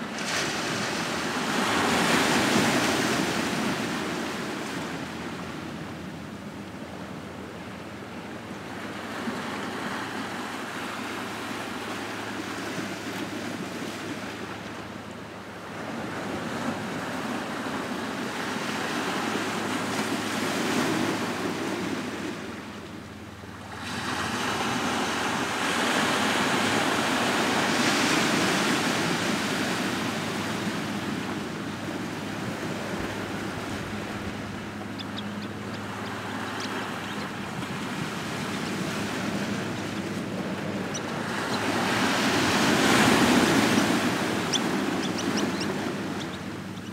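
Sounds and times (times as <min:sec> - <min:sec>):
waves washing over cobble beach: 0:35.6 - 0:46.2.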